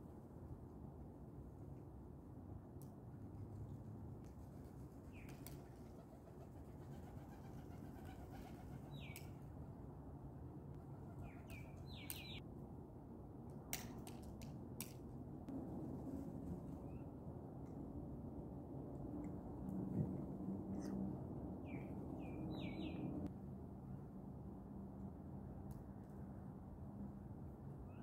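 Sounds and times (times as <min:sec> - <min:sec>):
low steady background noise: 0:00.0 - 0:28.0
bird chirping: 0:11.2 - 0:12.4, 0:21.6 - 0:23.3.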